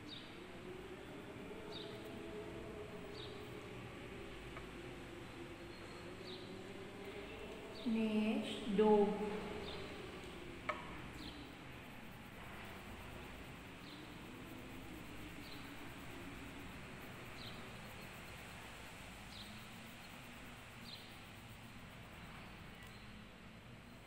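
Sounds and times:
bird chirping: 0:07.1 - 0:10.2, 0:22.1 - 0:23.2.

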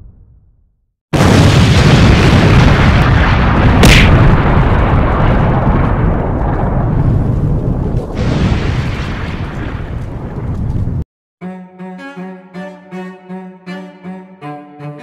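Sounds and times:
cinematic boom with rumbling blast: 0:01.2 - 0:10.6.

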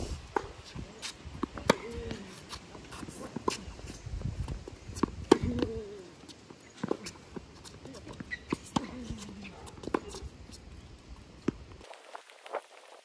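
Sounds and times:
tennis ball bouncing: 0:01.4 - 0:03.9, 0:04.7 - 0:10.3
racket striking tennis ball: 0:01.5 - 0:02.0, 0:05.0 - 0:05.8.

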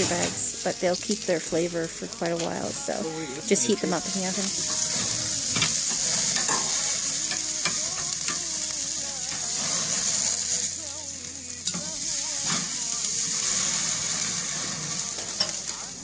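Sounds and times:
chicken sizzling on a grill: 0:00.0 - 0:16.0
metal tongs clicking on grate: 0:05.6 - 0:08.4, 0:11.6 - 0:12.6, 0:15.2 - 0:15.8.

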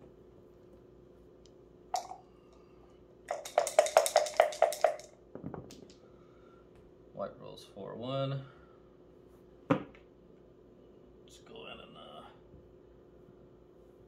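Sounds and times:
dice rattling in cup: 0:03.3 - 0:05.2
dice clattering onto board: 0:03.3 - 0:05.9.

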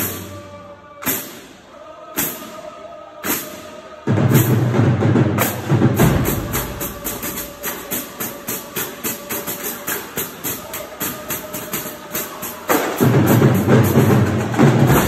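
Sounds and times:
marching drums: 0:03.2 - 0:15.0.

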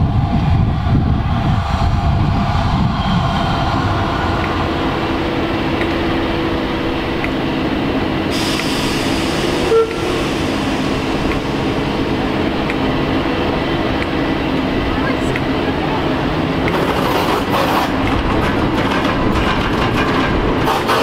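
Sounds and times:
locomotive rumble: 0:00.0 - 0:21.0
burst of hiss: 0:08.3 - 0:11.7.

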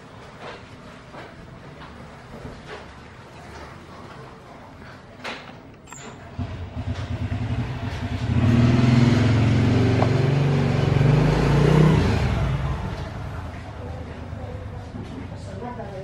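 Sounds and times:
vehicle engine running: 0:06.4 - 0:14.8.

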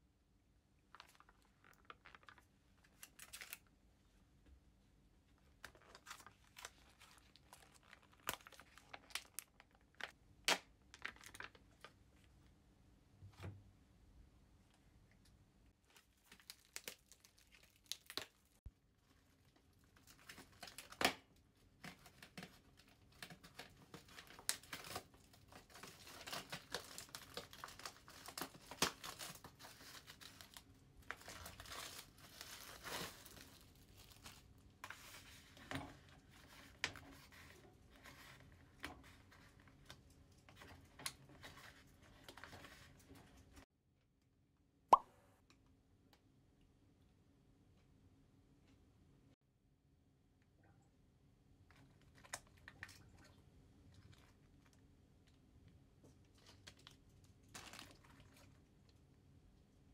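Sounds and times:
foil and plastic crinkling: 0:00.9 - 0:03.7, 0:05.6 - 0:10.2, 0:10.9 - 0:12.0, 0:15.9 - 0:18.6, 0:21.8 - 0:39.4, 0:56.3 - 0:58.6.

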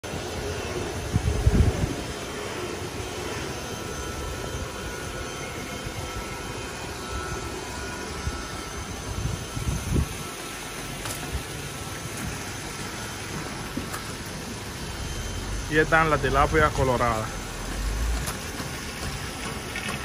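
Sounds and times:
aeration equipment droning: 0:00.0 - 0:20.0
wind rumble on microphone: 0:01.0 - 0:02.1, 0:09.0 - 0:10.3.

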